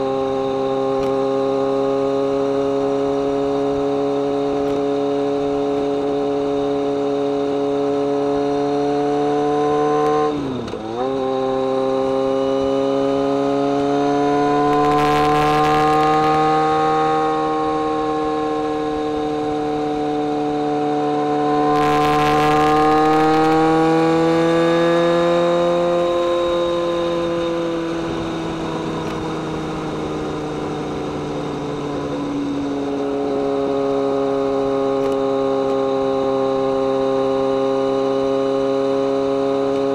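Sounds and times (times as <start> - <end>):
motorcycle engine and exhaust: 0.0 - 39.9.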